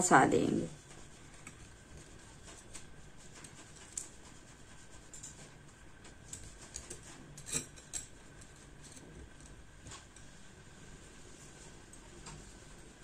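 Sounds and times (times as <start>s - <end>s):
cord rubbing and scratching: 0.8s - 10.4s.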